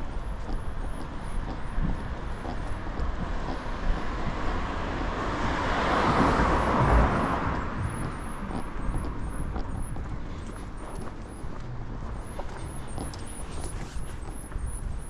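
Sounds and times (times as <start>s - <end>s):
steady traffic noise: 0.0s - 15.0s
car passing by: 2.6s - 9.4s.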